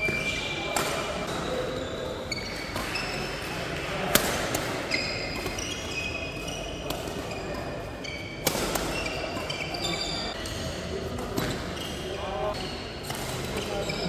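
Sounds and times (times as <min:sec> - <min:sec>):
court shoes squeaking: 0:00.0 - 0:14.0
rackets striking shuttlecock: 0:02.5 - 0:05.9, 0:08.3 - 0:11.7.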